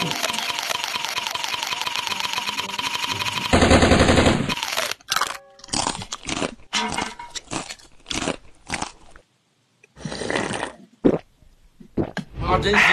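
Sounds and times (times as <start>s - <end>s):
crunching bites of hard candy: 7.4s - 9.2s.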